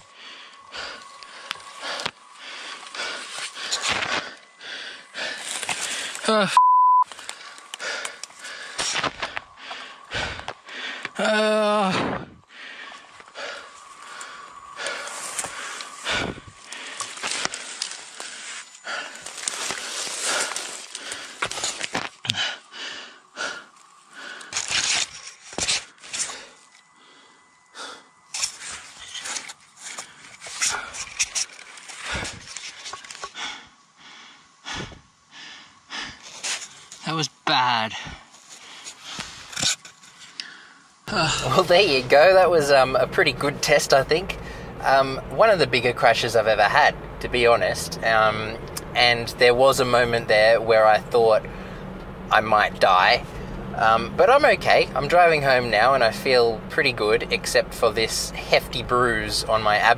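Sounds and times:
leaves and twigs rustling: 0:00.0 - 0:06.3, 0:07.1 - 0:11.1, 0:12.5 - 0:33.9, 0:38.2 - 0:43.0
censor bleep: 0:06.4 - 0:07.1
man gasping and panting: 0:07.2 - 0:17.6, 0:18.2 - 0:24.7, 0:32.0 - 0:36.5, 0:37.9 - 0:39.6
strained cry: 0:11.0 - 0:12.2.

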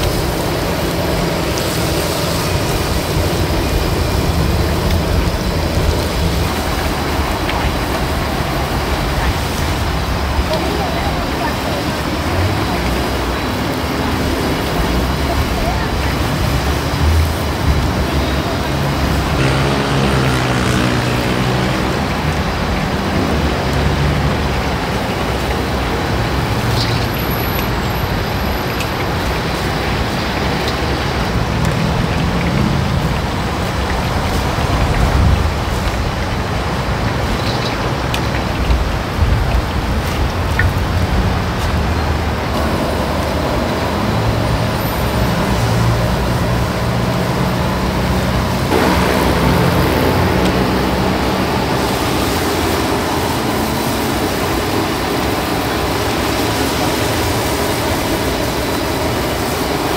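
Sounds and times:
potatoes deep-frying in oil: 0:00.0 - 0:59.9
low rumble: 0:48.7 - 0:52.4.

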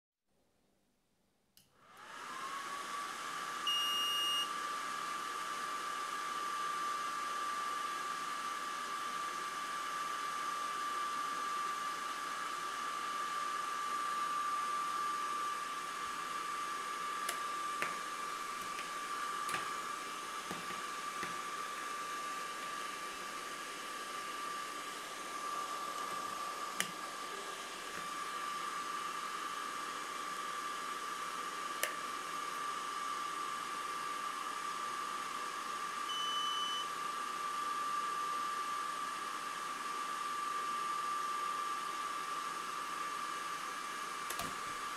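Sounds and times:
short electronic beep: 0:03.7 - 0:04.4
cable plugs clicking: 0:19.5 - 0:19.7.

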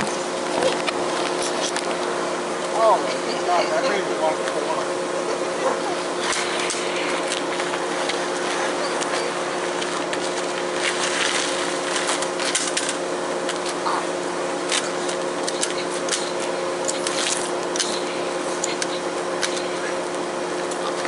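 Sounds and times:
steady hum: 0:00.0 - 0:21.0
body dragged across pavement: 0:06.2 - 0:12.8.

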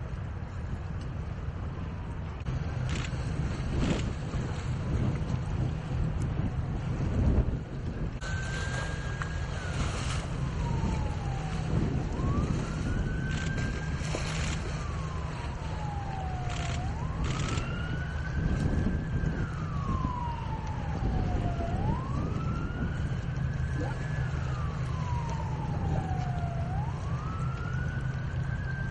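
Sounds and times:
steady low rumble: 0:00.0 - 0:28.9
siren wailing: 0:08.0 - 0:28.9.

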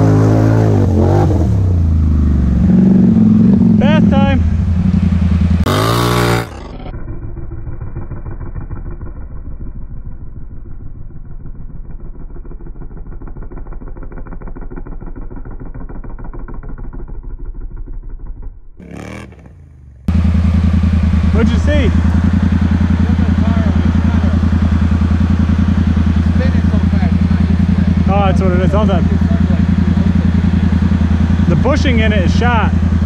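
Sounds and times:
atv engine revving: 0:00.0 - 0:09.8, 0:13.0 - 0:33.0.

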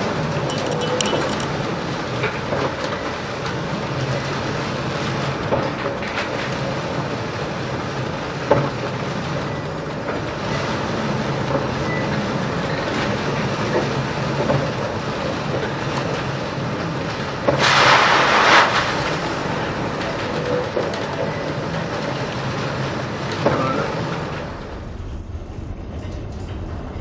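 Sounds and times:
wind: 0:00.0 - 0:27.0
sea waves: 0:16.5 - 0:20.4.

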